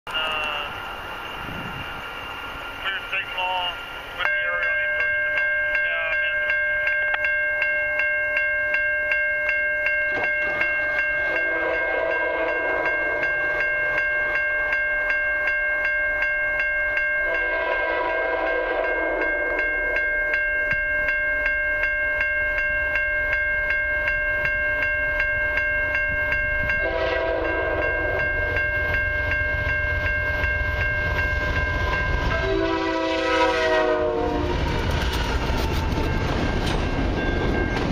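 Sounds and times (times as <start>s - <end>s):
crossing bell ringing: 0.1s - 37.9s
train rumbling: 0.1s - 37.9s
locomotive air horn blasts: 11.3s - 12.9s, 17.3s - 19.4s, 26.8s - 28.2s, 32.3s - 34.7s.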